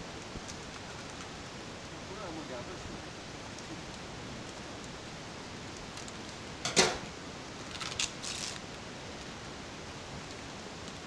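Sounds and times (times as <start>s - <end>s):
plastic bag crinkling: 7.6s - 8.7s
plastic bag sharp crack: 7.7s - 8.6s.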